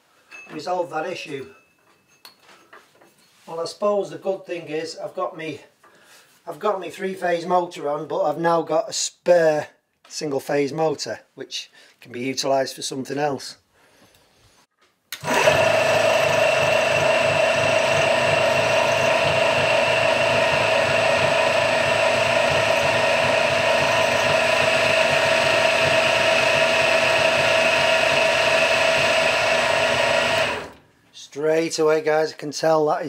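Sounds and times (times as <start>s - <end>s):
milling machine motor whining: 15.2s - 30.8s.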